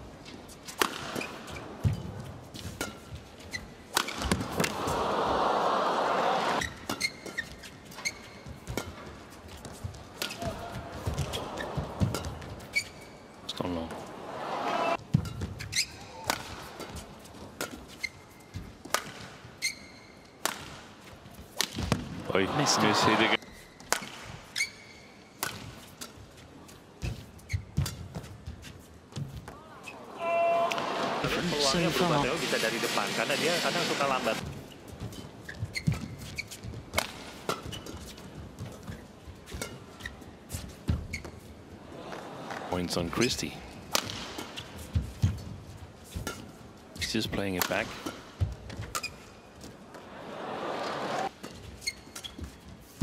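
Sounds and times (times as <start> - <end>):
racket hitting shuttlecock: 0.6 - 3.2, 3.9 - 4.9, 6.5 - 12.9, 15.1 - 18.0, 18.8 - 19.4, 20.4 - 20.9, 21.5 - 22.1, 23.8 - 24.7, 25.4 - 26.2, 35.7 - 38.9, 43.9 - 45.4
shoes squeaking on floor: 1.1 - 4.4, 6.6 - 13.4, 15.1 - 16.0, 17.7 - 18.8, 19.5 - 20.3, 24.5 - 25.2, 27.0 - 30.1, 34.4 - 41.6, 46.0 - 47.5, 48.4 - 49.8, 51.2 - 53.0
racket striking shuttlecock: 3.9 - 4.8, 16.2 - 17.0, 20.4 - 20.8, 43.9 - 44.6.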